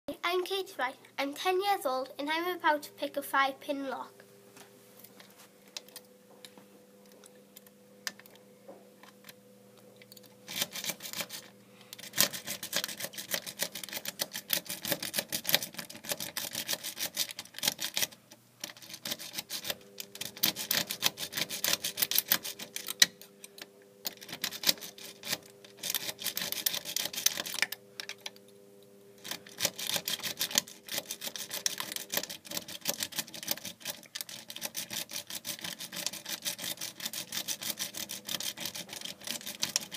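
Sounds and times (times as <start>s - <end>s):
lock pick clicking and scratching: 10.0s - 28.4s, 29.2s - 39.9s.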